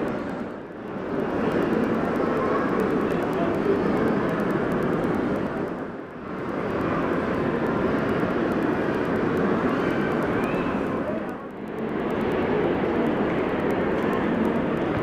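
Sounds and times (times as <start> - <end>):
crowded shopping mall din: 0.0 - 15.0.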